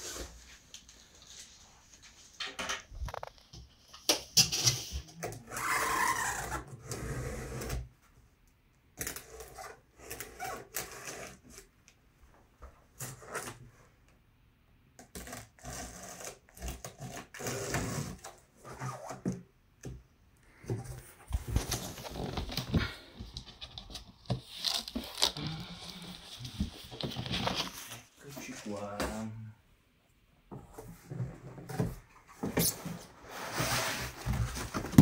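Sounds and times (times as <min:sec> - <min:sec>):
cardboard box scraping rustle: 0:21.1 - 0:28.2, 0:32.4 - 0:35.0.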